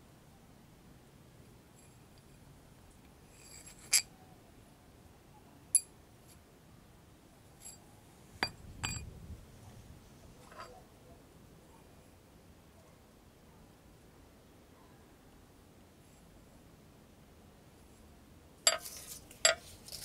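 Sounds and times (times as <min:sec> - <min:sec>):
metal washer and bolt clinking: 0:08.4 - 0:09.1, 0:18.7 - 0:20.0.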